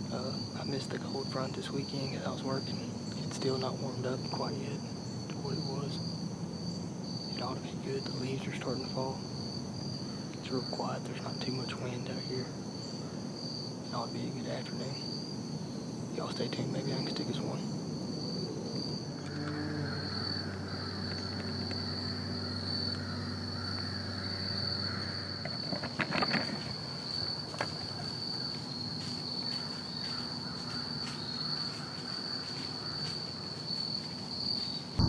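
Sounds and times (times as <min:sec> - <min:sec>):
insects chirping: 0:00.0 - 0:35.0
clicks and rustles: 0:25.4 - 0:26.8.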